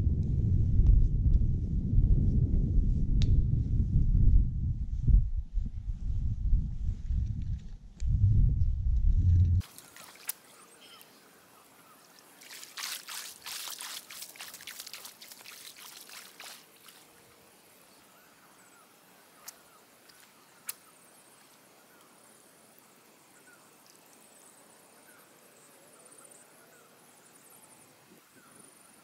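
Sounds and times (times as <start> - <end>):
shallow water lapping: 9.6 - 11.0, 12.1 - 17.4.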